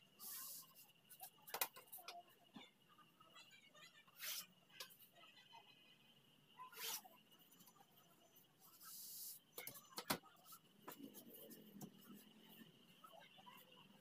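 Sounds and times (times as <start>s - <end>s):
chalk scratching along wooden ruler: 6.8s - 7.0s.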